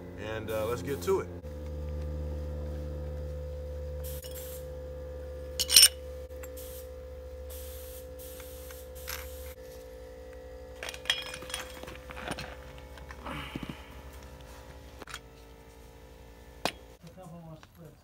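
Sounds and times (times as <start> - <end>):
metal parts clinking and scraping: 5.6 - 6.5, 9.0 - 9.5, 10.8 - 13.2.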